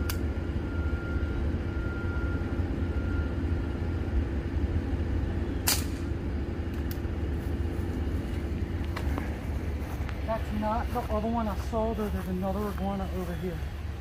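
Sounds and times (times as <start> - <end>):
vehicle engine idling: 0.0 - 14.0
sharp crack: 5.6 - 7.1.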